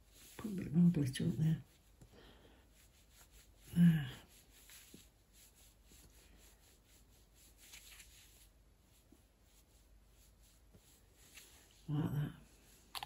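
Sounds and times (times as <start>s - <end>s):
brush scratching on nail: 2.6s - 11.8s.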